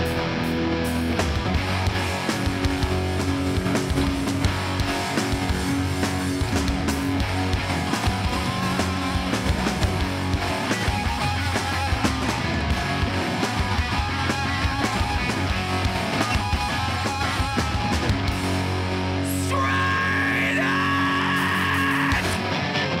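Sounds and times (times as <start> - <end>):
bass and drums pounding: 0.0 - 22.9
distorted electric guitars: 0.0 - 23.0
person yelling vocals: 19.3 - 22.4.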